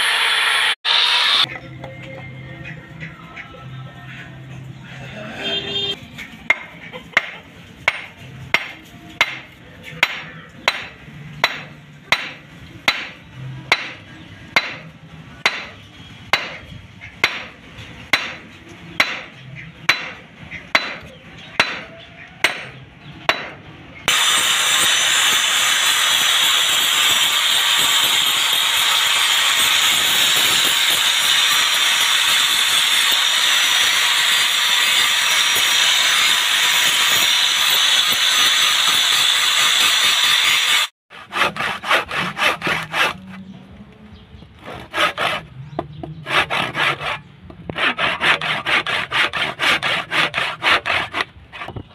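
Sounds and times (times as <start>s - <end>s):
angle grinder grinding steel: 0.0s - 1.6s, 24.1s - 43.5s, 44.7s - 51.8s.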